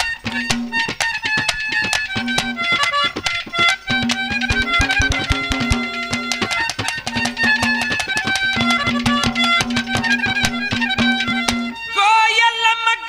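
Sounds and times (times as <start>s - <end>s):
rapid drum strokes: 0.0s - 11.8s
wavering melody line: 1.7s - 2.8s, 3.5s - 11.8s
low held drone note: 3.9s - 6.4s.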